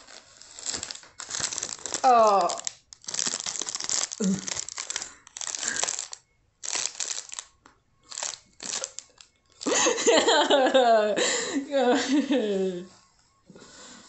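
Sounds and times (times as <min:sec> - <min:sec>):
plastic bag crinkling: 0:00.0 - 0:10.0
woman laughing loudly: 0:09.6 - 0:12.9.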